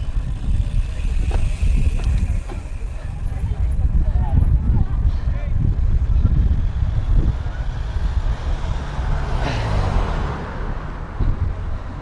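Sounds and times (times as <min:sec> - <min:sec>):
tyres rolling on asphalt: 0:00.0 - 0:12.0
wind buffeting microphone: 0:00.0 - 0:12.0.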